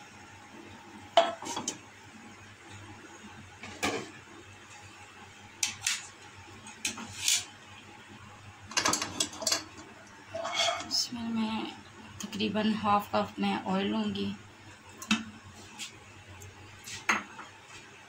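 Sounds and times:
cookware clinking and clacking: 8.7s - 9.8s, 10.4s - 11.0s.

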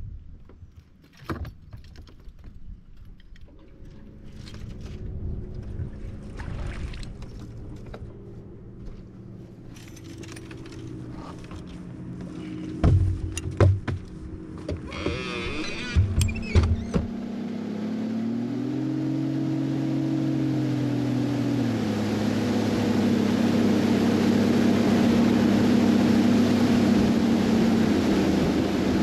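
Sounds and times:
boat motor humming: 3.3s - 29.0s
loud thumps: 16.0s - 17.2s.

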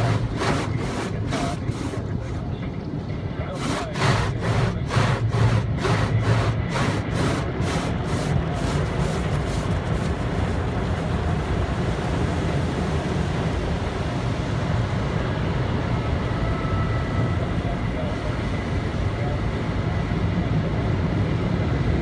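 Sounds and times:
water spraying against windows: 0.0s - 2.0s, 3.5s - 12.0s
car wash machinery rumbling: 0.0s - 22.0s.

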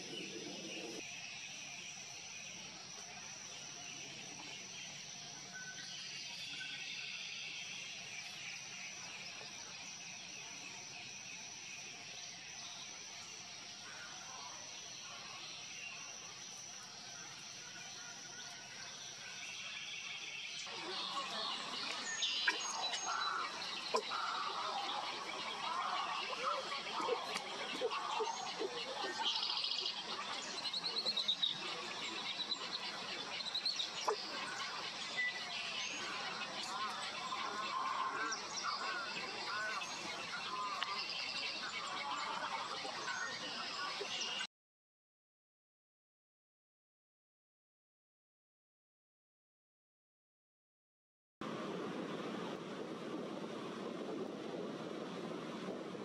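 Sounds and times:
bird chirps: 0.0s - 44.4s
distant insects hissing: 0.0s - 44.4s.

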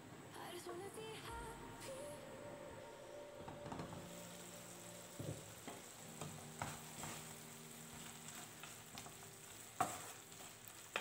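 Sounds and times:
faint sizzle: 0.0s - 11.0s
spatula scraping pan: 9.8s - 11.0s.

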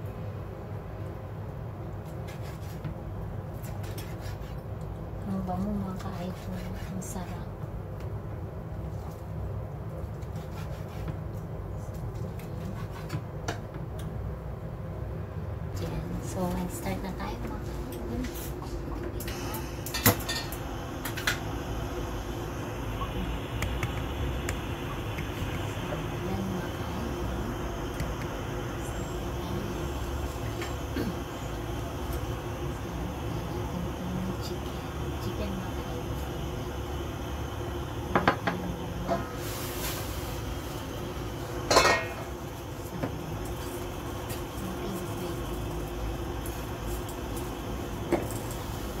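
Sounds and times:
steady low hum: 0.0s - 49.0s
glass lid clinking on metal pot: 41.7s - 42.2s.

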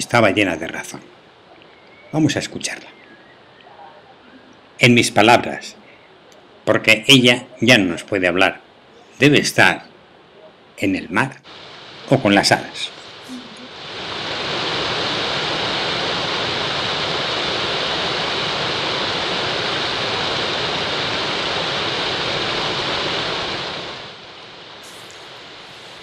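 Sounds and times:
waterfall rushing: 11.5s - 26.0s.

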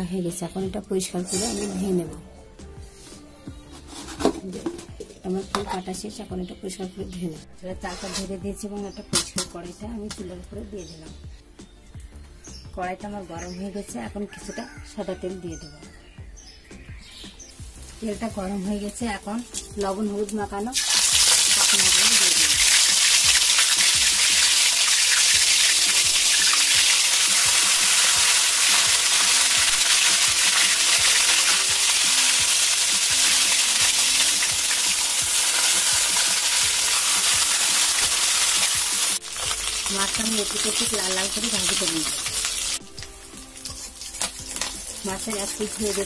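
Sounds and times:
spatula turning fish: 3.1s - 4.4s, 20.8s - 46.0s
fish sizzling in hot oil: 17.5s - 46.0s.

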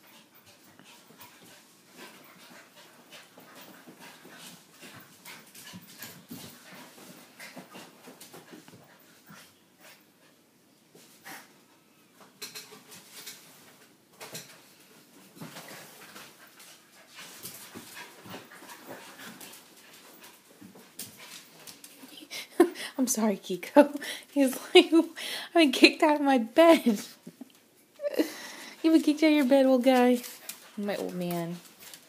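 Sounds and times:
dogs scuffling on tiled floor: 0.1s - 10.0s, 12.4s - 22.2s, 28.7s - 32.0s.

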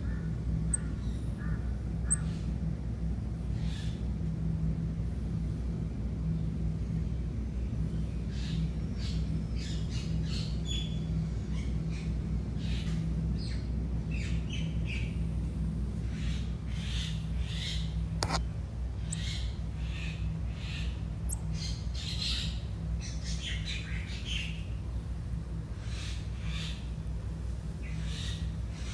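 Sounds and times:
steady low hum: 0.0s - 28.9s.

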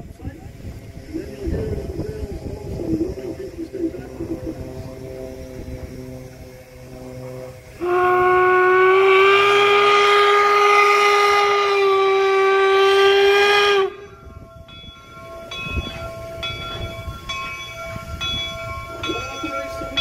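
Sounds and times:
steam locomotive running: 0.0s - 20.0s
steam whistle blast: 4.7s - 14.4s.

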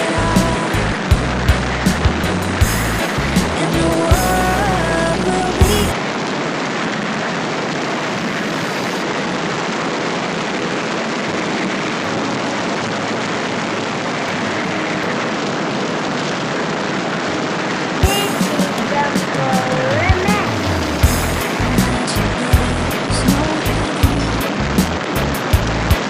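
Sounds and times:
road noise: 0.0s - 6.0s, 15.6s - 26.0s
rushing wind: 16.4s - 25.9s.

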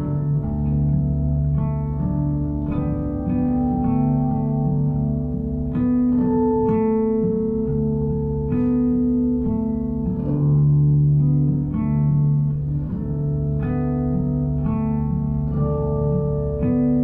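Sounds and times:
plucked guitar notes: 0.0s - 17.0s
sustained low bass: 0.0s - 17.0s.

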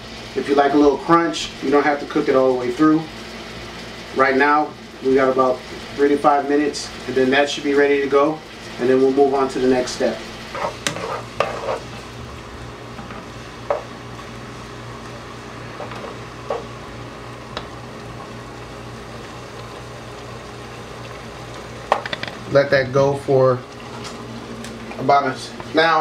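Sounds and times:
food sizzling in a pot: 0.0s - 26.0s
spoon scraping a pot: 10.5s - 11.9s.

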